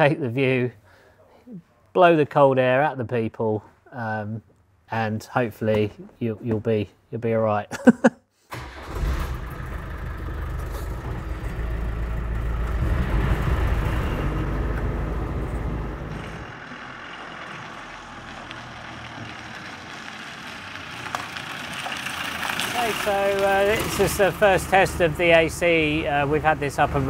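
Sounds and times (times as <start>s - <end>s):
vehicle engine running: 8.6s - 27.0s.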